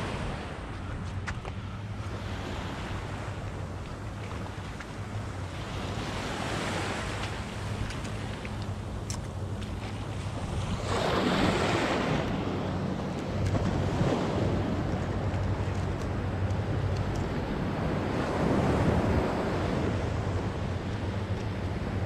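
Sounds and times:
wind rumbling on microphone: 0.0 - 22.0
surf washing up beach: 2.0 - 22.0.

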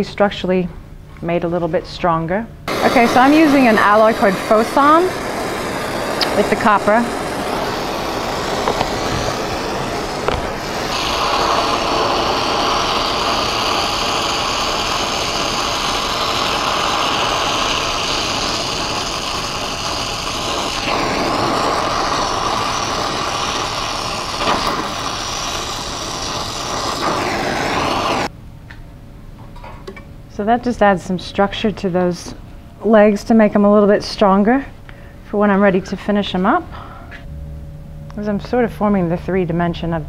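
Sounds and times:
torch flame hissing: 2.7 - 28.3.

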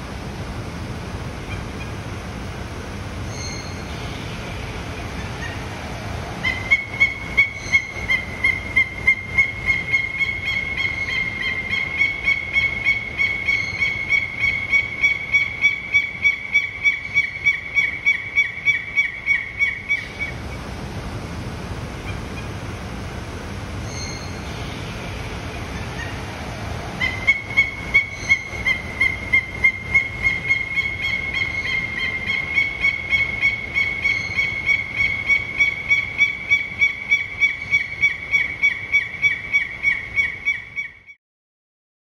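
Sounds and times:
bird calling high whistled notes: 3.3 - 4.1, 6.4 - 20.3, 23.8 - 24.8, 27.0 - 41.2.

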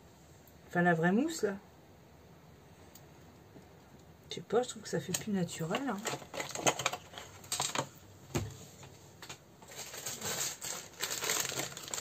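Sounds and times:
plastic bag crinkling: 5.6 - 7.9, 9.2 - 12.0.

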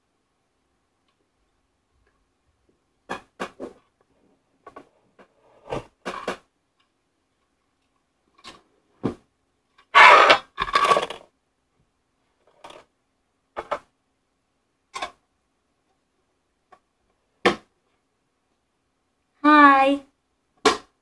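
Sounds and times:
jigsaw pieces rattling from tin: 10.3 - 11.2.

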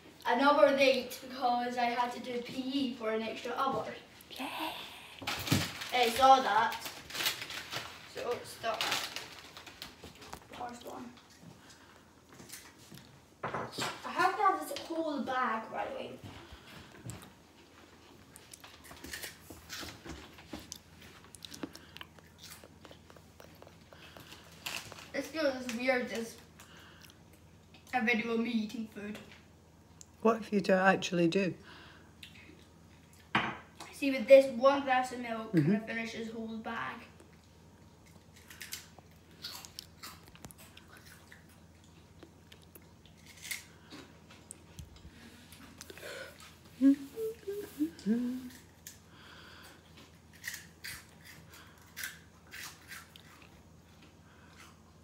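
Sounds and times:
person chewing crisps: 17.0 - 25.2, 37.2 - 55.0.

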